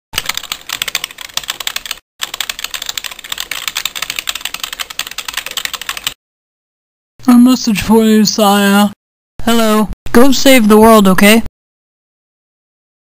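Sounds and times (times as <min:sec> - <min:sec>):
rapid keyboard key clicks: 0:00.2 - 0:06.2.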